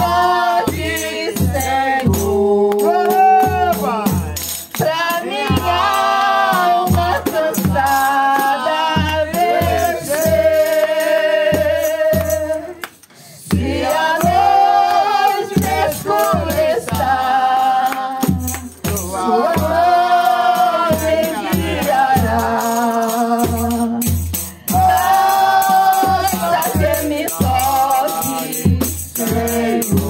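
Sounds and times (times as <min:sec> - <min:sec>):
backing track with bass beat: 0:00.0 - 0:30.0
shaker percussion: 0:00.0 - 0:30.0
woman singing through loudspeaker: 0:04.8 - 0:12.8, 0:24.7 - 0:30.0.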